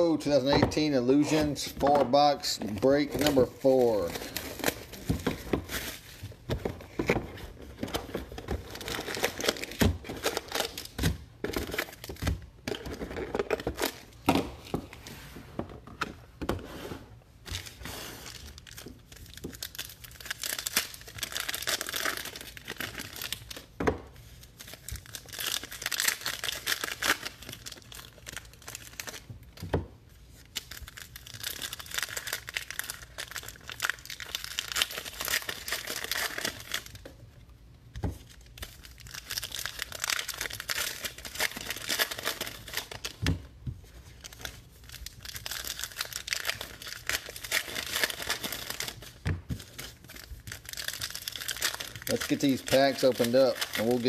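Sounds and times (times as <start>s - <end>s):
foil wrappers tearing and crinkling: 7.8s - 14.2s, 17.5s - 29.5s, 30.3s - 37.0s, 38.2s - 43.2s, 43.8s - 54.0s.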